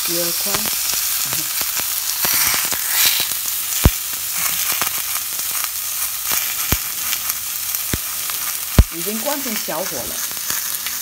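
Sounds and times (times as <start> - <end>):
steaks sizzling in a frying pan: 0.0 - 11.0
sharp pops: 0.5 - 5.2, 6.2 - 9.0.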